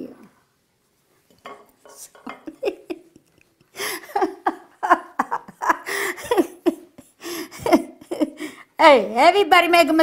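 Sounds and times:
elderly woman laughing: 2.2s - 8.6s.

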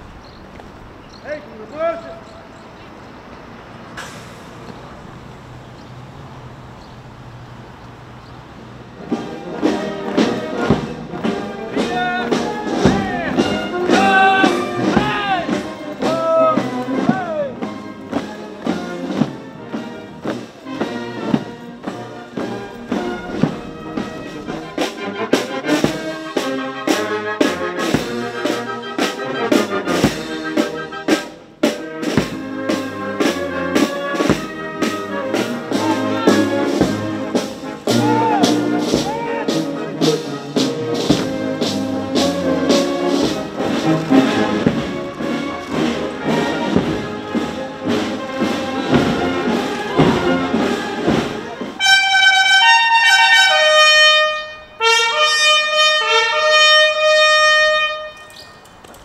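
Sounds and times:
military brass band playing a march: 8.7s - 58.3s
drum beats: 8.9s - 54.1s.

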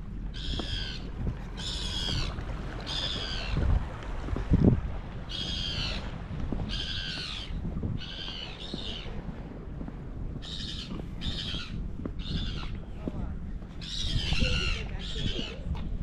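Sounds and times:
bird calling: 0.4s - 3.6s, 5.3s - 6.1s, 6.7s - 9.2s, 10.4s - 12.8s.

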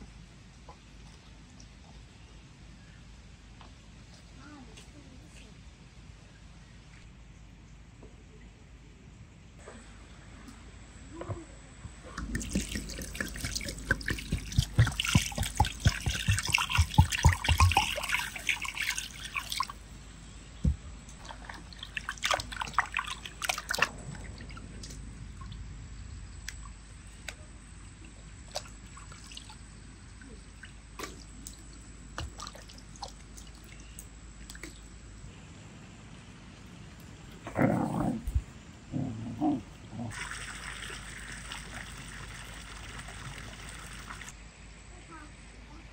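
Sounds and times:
water splashing in a plastic bowl: 12.2s - 19.8s, 21.1s - 25.6s, 28.4s - 29.7s, 30.4s - 34.9s, 40.1s - 44.3s
water dripping: 12.2s - 19.9s, 21.0s - 25.8s, 28.0s - 35.2s, 40.1s - 44.3s.

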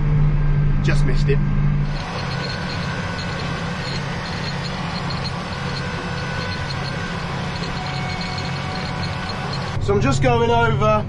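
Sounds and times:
faint high ticking: 1.8s - 9.8s
tractor diesel engine running: 1.8s - 10.2s.

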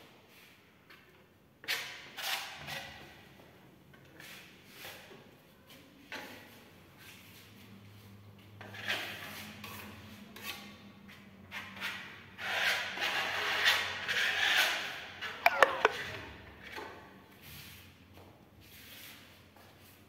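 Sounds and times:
trowel scraping across wall: 1.6s - 5.3s, 8.6s - 17.9s.

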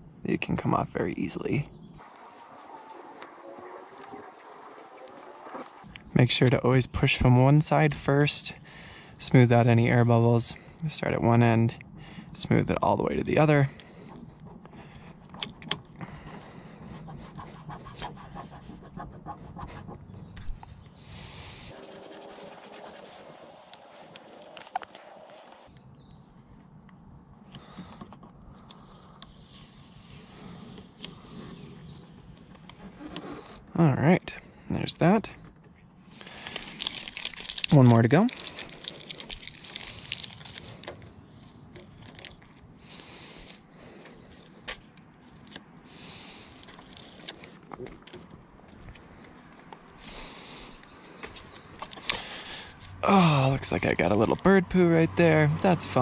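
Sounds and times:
fingers rubbing vinyl film: 2.0s - 5.9s, 13.8s - 20.4s, 21.7s - 25.7s, 36.2s - 41.0s, 41.7s - 47.6s.

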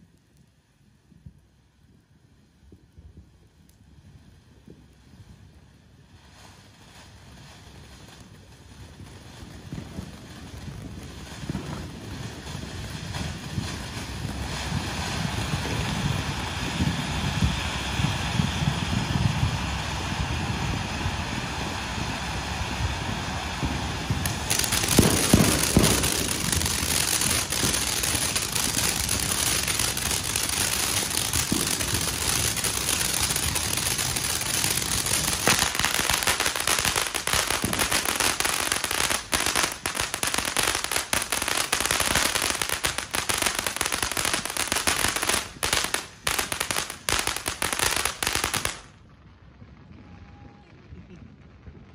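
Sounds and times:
firework fountain hissing: 0.0s - 49.1s
heavy firework thumps: 23.6s - 48.9s.

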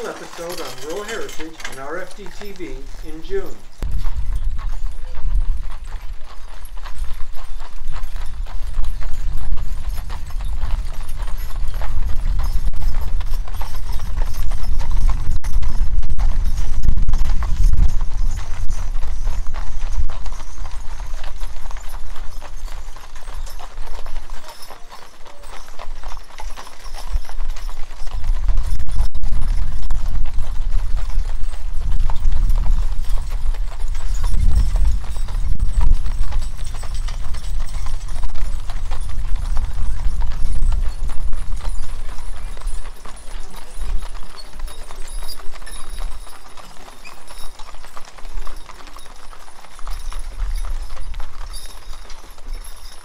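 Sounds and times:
hooves clip-clopping on pavement: 0.0s - 53.0s
low rumble: 14.8s - 20.1s.

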